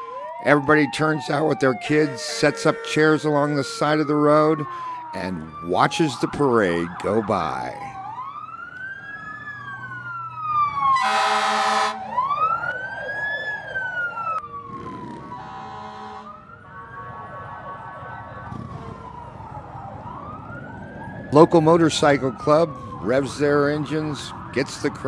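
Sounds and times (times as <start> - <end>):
fire engine siren wailing: 0.0 - 25.0
fire engine horn blast: 2.0 - 3.3, 11.0 - 12.0, 15.3 - 16.4, 18.5 - 19.2.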